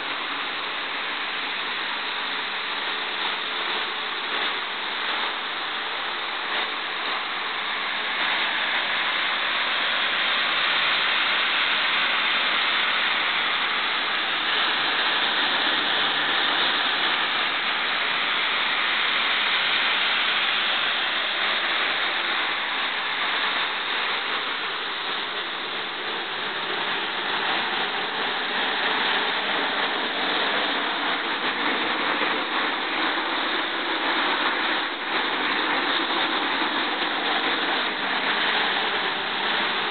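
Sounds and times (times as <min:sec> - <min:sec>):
turbine engine rushing: 0:00.0 - 0:39.9.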